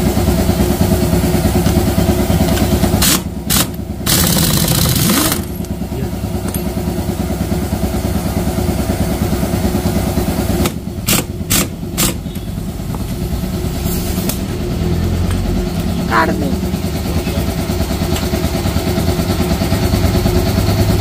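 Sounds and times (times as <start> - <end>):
motorcycle engine idling: 0.0 - 21.0.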